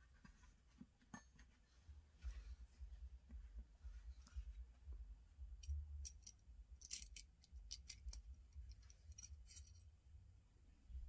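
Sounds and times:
small metal knife parts clicking: 5.6 - 9.8.

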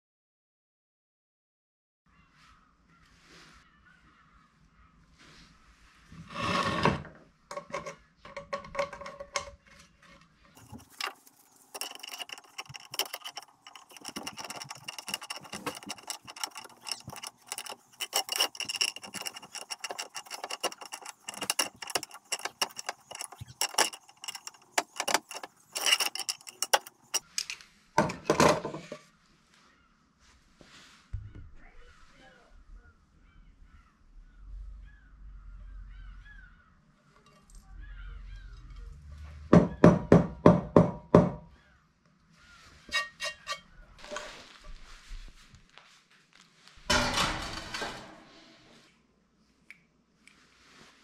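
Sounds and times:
metal clinking and scraping: 7.5 - 29.1, 42.8 - 45.4, 46.7 - 48.6.

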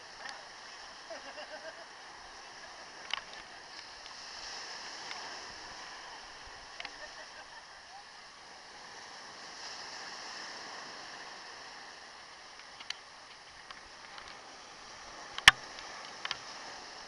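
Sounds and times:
surf washing on a beach: 0.0 - 17.0
faint clicks: 0.2 - 0.4, 2.6 - 4.2, 5.0 - 5.3, 6.7 - 7.1, 12.5 - 14.4, 15.2 - 16.6.

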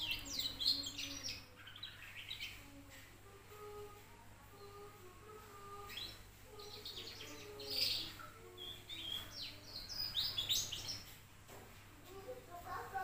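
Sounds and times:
canary twittering: 0.0 - 3.0, 5.4 - 11.2.

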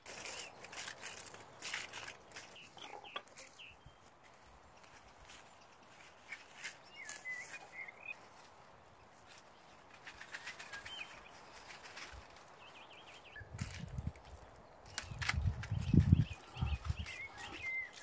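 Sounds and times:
plastic bag crinkling: 0.0 - 3.0
bird chirping: 0.2 - 18.0.

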